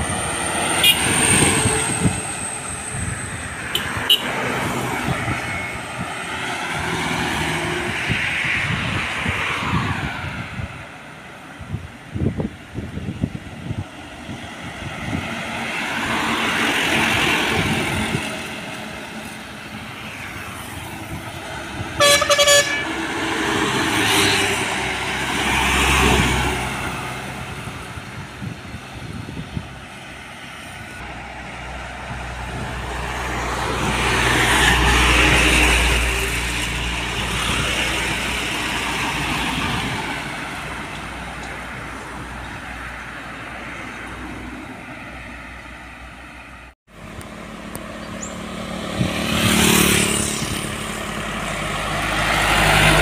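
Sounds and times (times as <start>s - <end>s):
vehicles passing on highway: 0.0s - 53.0s
vehicle horn blast: 0.8s - 1.1s, 3.7s - 4.4s, 22.0s - 23.0s.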